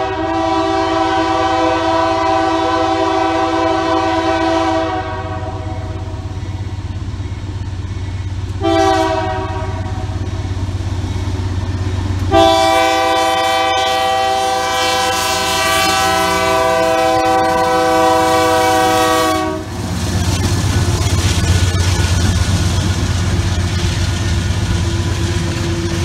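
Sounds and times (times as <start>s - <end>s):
locomotive air horn blasts: 0.0s - 6.2s, 8.6s - 10.2s, 12.2s - 19.8s
diesel engines rumbling: 0.0s - 26.0s
train wheel noise: 0.0s - 26.0s.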